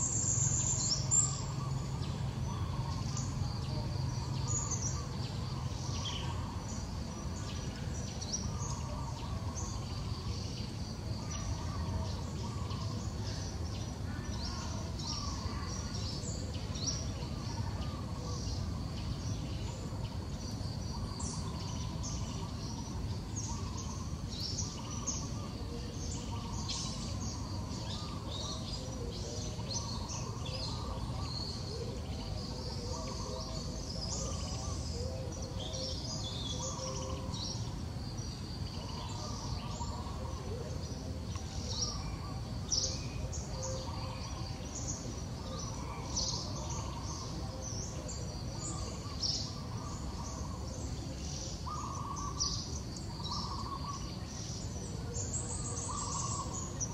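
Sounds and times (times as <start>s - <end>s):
birds chirping: 0.0s - 56.9s.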